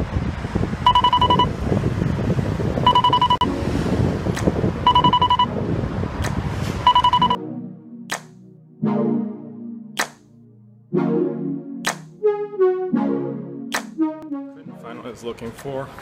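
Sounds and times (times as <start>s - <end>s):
city street traffic: 0.0s - 7.4s, 14.7s - 16.0s
high electronic beep: 0.9s - 1.5s, 2.9s - 3.5s, 4.9s - 5.5s, 6.9s - 7.4s
synth music: 3.4s - 4.2s, 4.9s - 6.1s, 6.9s - 15.6s.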